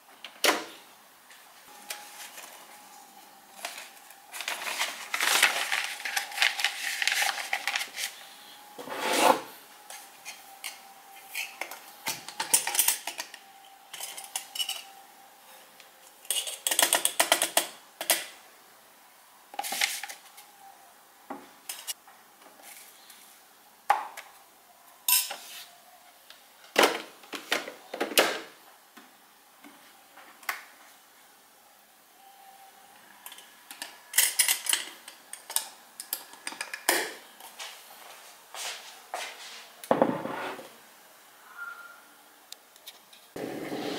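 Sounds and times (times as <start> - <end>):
paper filter rustling: 3.5 - 8.4
metal spoon clinking and scraping: 10.2 - 11.6, 12.4 - 15.0, 16.2 - 18.2, 25.1 - 25.4.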